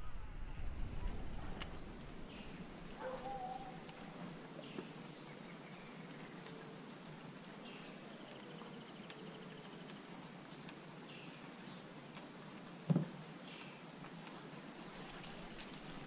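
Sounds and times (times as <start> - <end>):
wild birds calling: 0.0 - 12.7.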